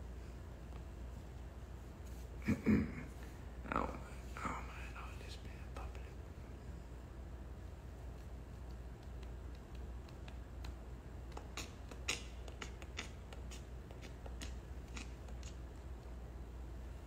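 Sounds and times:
faint low hum: 0:00.0 - 0:17.0
light clicks and taps: 0:08.1 - 0:15.8.

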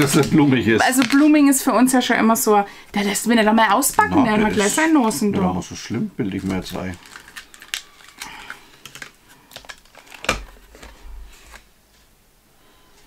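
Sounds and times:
plastic clicks and crackles: 0:06.3 - 0:11.6.

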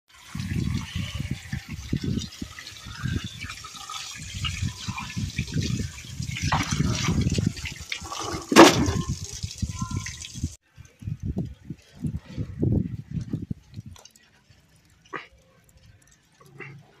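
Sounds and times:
water pouring and splashing: 0:00.1 - 0:17.0.

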